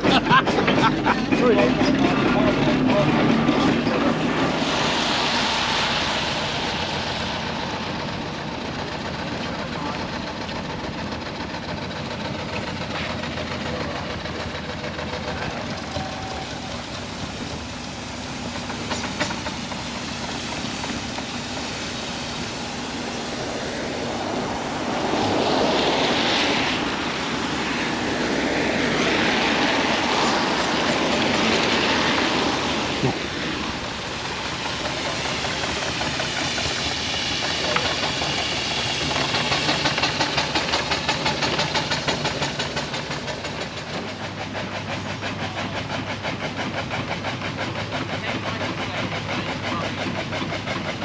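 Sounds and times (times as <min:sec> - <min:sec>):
even rushing noise: 0:00.0 - 0:11.8, 0:13.2 - 0:45.1
steam engines running: 0:00.0 - 0:51.0
traffic: 0:00.0 - 0:51.0.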